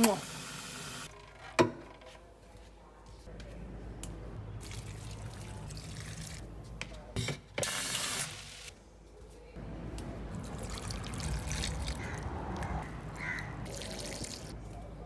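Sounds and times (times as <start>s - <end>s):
water poured onto soil: 10.4s - 12.7s, 13.6s - 14.6s.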